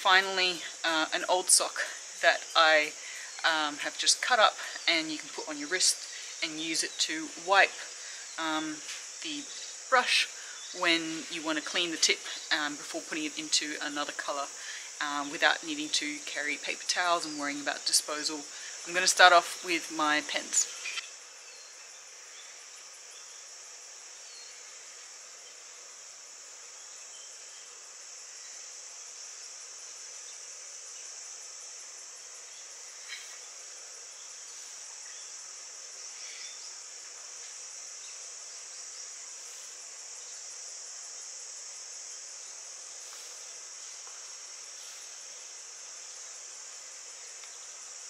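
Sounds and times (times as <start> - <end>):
insects chorus: 0.0 - 48.0.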